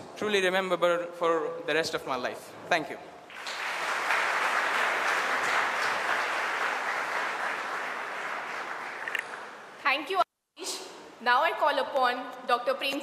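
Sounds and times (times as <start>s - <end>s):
audience applauding: 3.3s - 9.7s.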